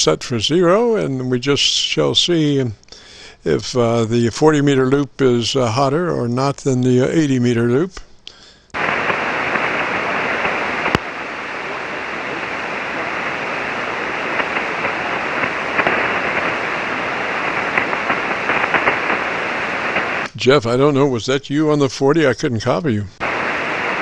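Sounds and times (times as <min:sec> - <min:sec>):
radio band noise hiss: 0:00.0 - 0:24.0.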